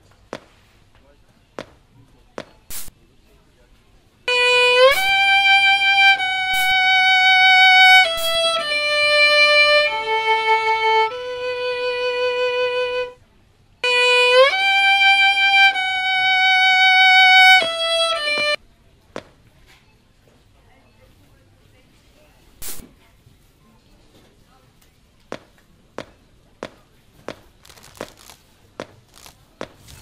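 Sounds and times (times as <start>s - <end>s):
violin playing slow melody: 4.3s - 13.2s, 13.8s - 18.6s.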